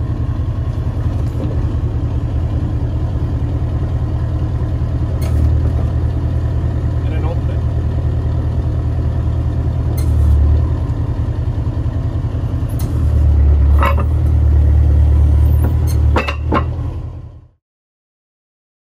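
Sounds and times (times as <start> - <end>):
diesel truck engine humming: 0.0 - 17.6
metallic knocks: 13.6 - 14.4, 15.6 - 16.9.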